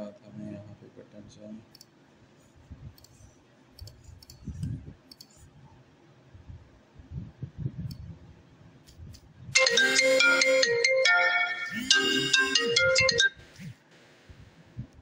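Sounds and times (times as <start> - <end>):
computer mouse clicking: 1.7 - 1.9, 2.9 - 3.2, 3.8 - 5.4, 7.8 - 8.1
melody of clear held notes: 9.6 - 13.4.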